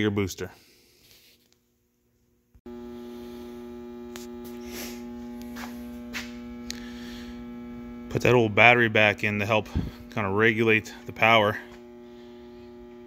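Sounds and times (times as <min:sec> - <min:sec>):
battery charger transformer hum: 0:02.6 - 0:13.0.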